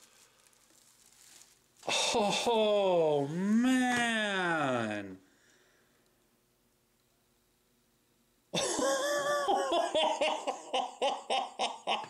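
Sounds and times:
man laughing excitedly: 0:08.6 - 0:12.0.

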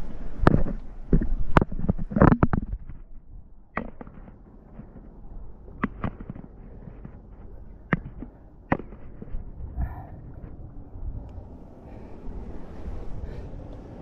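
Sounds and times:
low wind noise: 0:00.0 - 0:14.0
knocks against rock: 0:03.8 - 0:05.1, 0:07.9 - 0:09.4.

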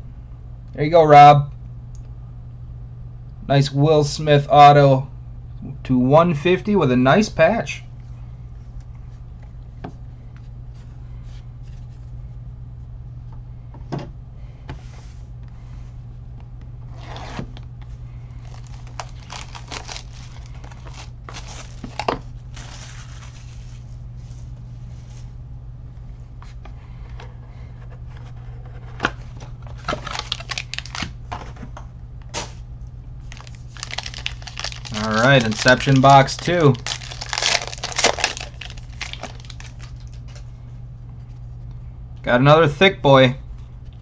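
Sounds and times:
steady low hum: 0:00.0 - 0:44.0
plastic wrappers crinkling: 0:18.4 - 0:23.9, 0:29.8 - 0:31.2, 0:33.2 - 0:40.4.

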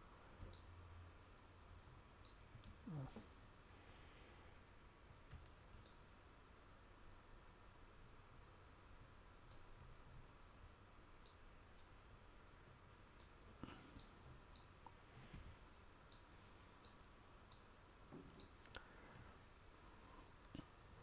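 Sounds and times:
low steady hiss: 0:00.0 - 0:21.0
computer mouse clicking: 0:00.2 - 0:00.7, 0:02.2 - 0:02.8, 0:05.1 - 0:06.0, 0:13.2 - 0:14.8, 0:16.1 - 0:17.7, 0:18.3 - 0:18.8.

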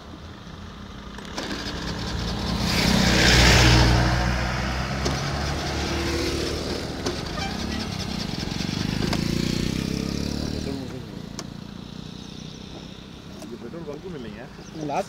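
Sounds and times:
bus driving past: 0:00.3 - 0:13.8
motorcycles passing: 0:00.3 - 0:15.0.

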